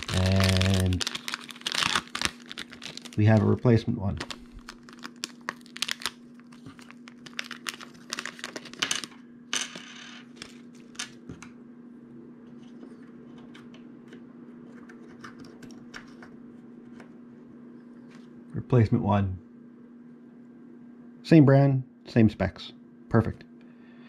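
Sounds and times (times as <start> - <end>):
foil pouch crinkling: 0.0 - 9.1
faint steady hum: 0.0 - 24.0.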